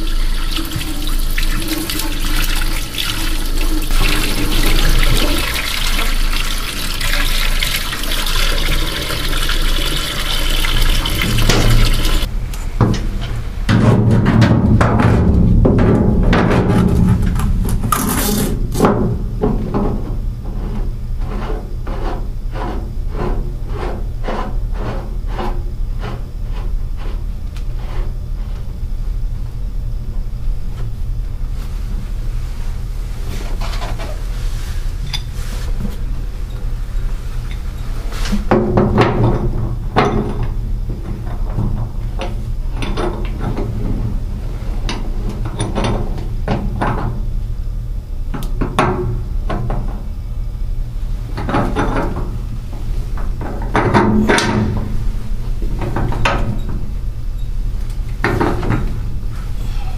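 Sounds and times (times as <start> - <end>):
steady low hum: 0.0 - 59.9
metal clunks and clatter: 12.8 - 18.0, 53.2 - 55.0.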